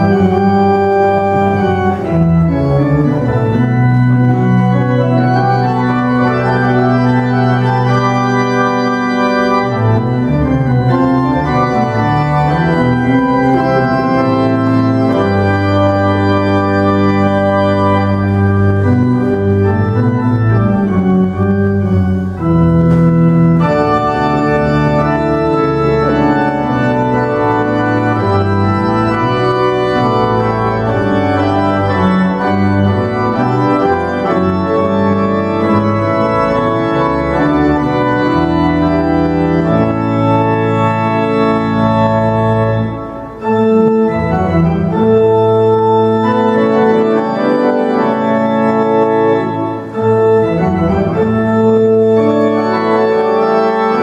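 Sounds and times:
pipe organ chords: 0.0s - 54.0s.

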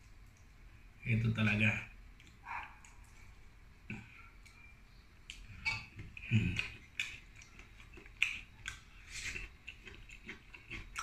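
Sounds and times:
chewing: 5.3s - 11.0s.

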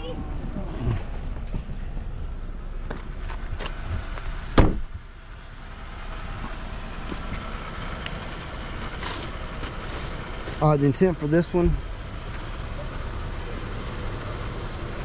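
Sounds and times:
car door slamming: 4.5s - 4.9s.

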